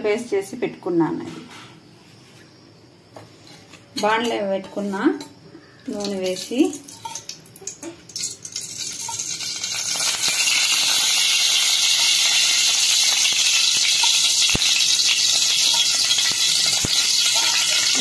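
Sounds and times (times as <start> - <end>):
pan hissing on gas stove: 9.0 - 18.0.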